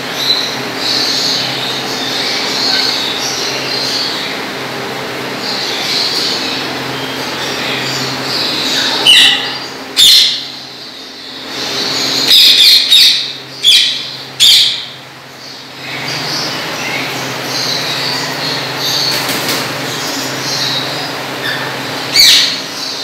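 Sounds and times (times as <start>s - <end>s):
birds chattering: 0.0s - 23.0s
parakeets screeching: 0.0s - 23.0s
steady low hum: 0.0s - 23.0s.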